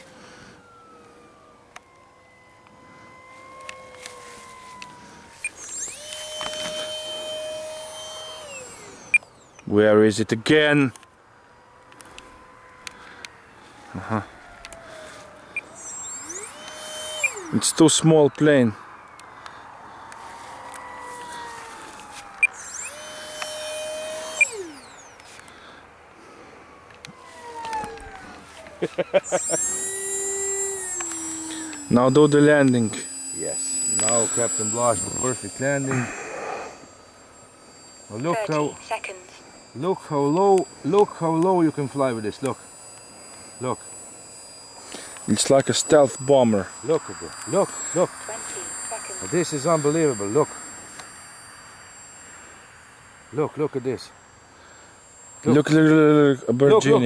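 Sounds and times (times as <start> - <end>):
electric ducted fan whining: 0.0 - 57.0
sharp clicks: 3.5 - 9.7, 14.4 - 17.6, 19.0 - 25.6, 26.9 - 54.0.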